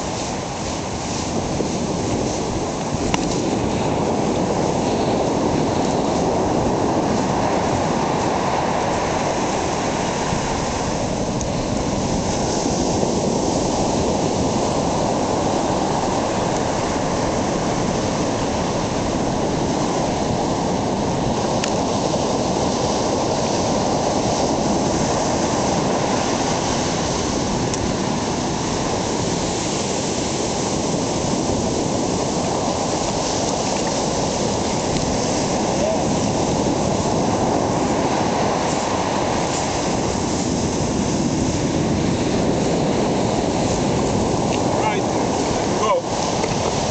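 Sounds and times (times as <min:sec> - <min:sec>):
ocean surf breaking on beach: 0:00.0 - 0:46.9.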